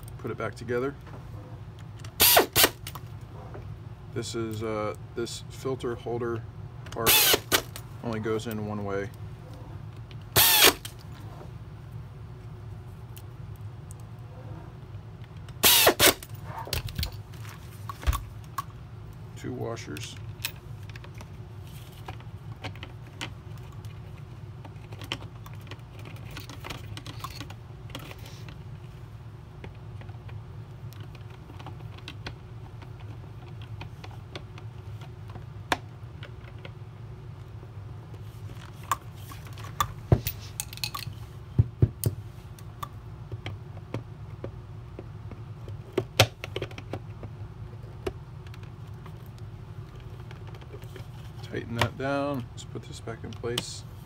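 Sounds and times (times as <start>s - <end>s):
steady low hum: 0.0s - 54.0s
plastic parts clicking and tapping: 42.8s - 49.2s.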